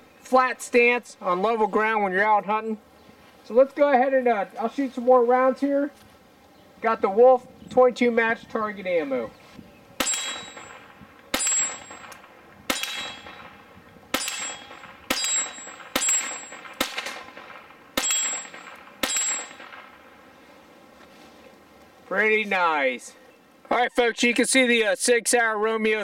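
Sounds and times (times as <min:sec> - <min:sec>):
steel target clanging: 0:10.0 - 0:19.9
pistol shots: 0:10.0 - 0:20.2.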